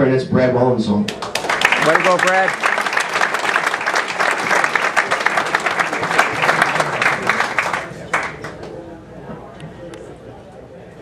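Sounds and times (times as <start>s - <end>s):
crowd applauding: 1.1s - 8.7s.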